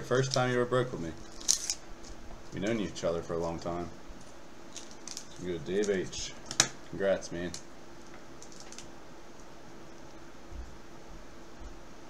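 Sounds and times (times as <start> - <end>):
faint room hiss: 0.0 - 12.0.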